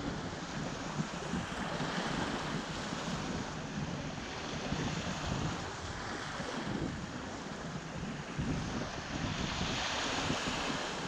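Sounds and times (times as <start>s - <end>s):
waves washing up beach: 0.0s - 11.0s
wind on microphone: 0.0s - 11.0s.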